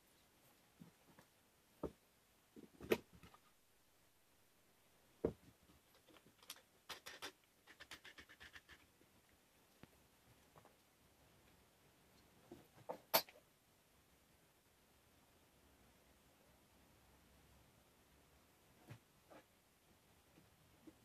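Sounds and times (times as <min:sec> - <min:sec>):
small clicks and ticks: 0:05.9 - 0:10.9.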